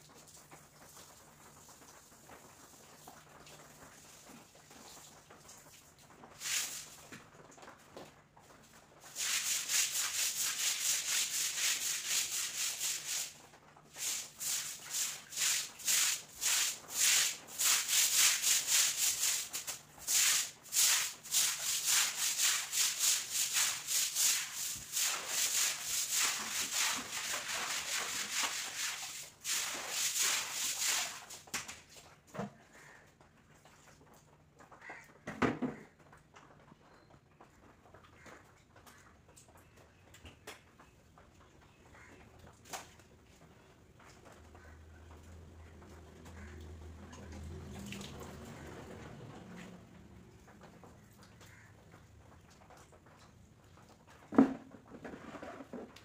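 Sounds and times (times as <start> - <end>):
stick broom scrubbing wet floor: 6.4 - 7.1, 9.0 - 31.5, 54.3 - 56.0.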